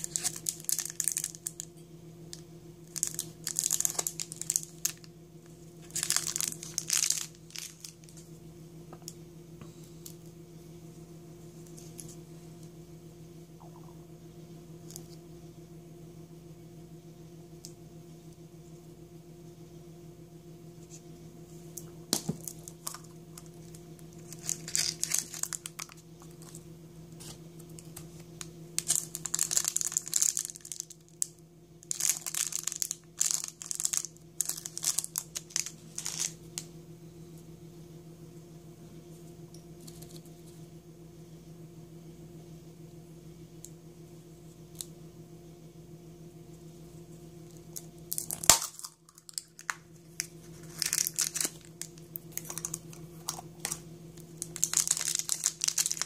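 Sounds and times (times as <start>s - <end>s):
plastic wrapper crinkling and tearing: 0.0s - 1.7s, 2.3s - 8.3s, 22.1s - 26.6s, 27.2s - 36.7s, 47.7s - 56.0s
steady low hum: 0.0s - 56.0s
plastic egg snapping open: 47.8s - 53.8s.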